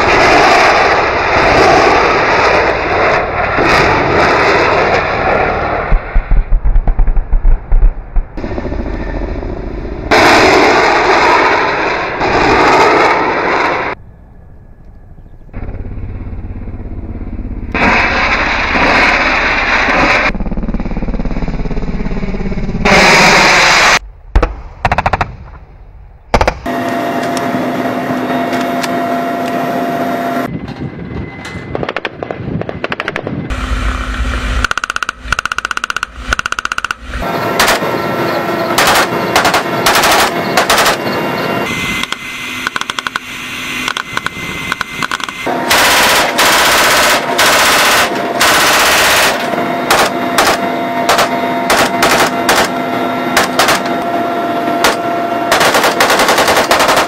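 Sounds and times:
helicopter engine and rotor drone: 0.0 - 11.4, 13.9 - 23.7, 26.4 - 57.0
automatic gunfire bursts: 38.8 - 41.0, 45.7 - 52.7, 53.4 - 53.9, 54.8 - 57.0.

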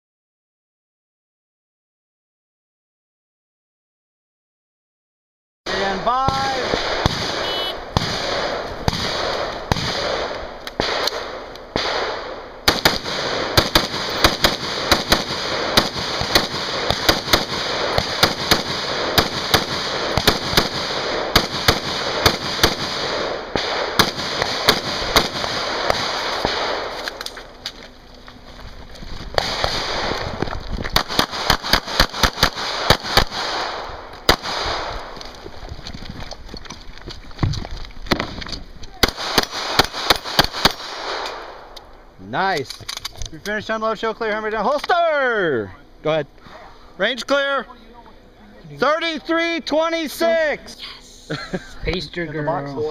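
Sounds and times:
gunshots: 5.7 - 27.3, 29.3 - 35.2, 39.0 - 41.7.

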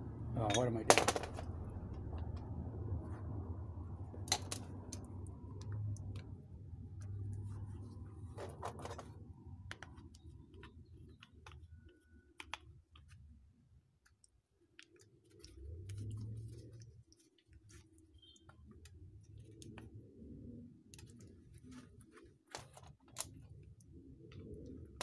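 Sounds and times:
low rumble: 1.2 - 8.4.

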